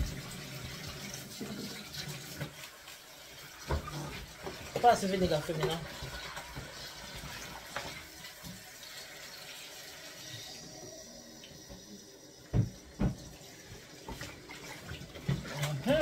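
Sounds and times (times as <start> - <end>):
tap running into sink: 11.7 - 14.4.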